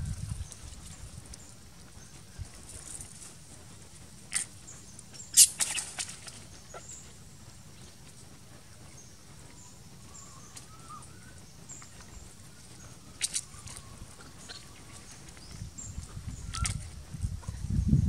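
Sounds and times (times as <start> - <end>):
faint wavering whistle: 9.6 - 15.0, 16.3 - 16.8.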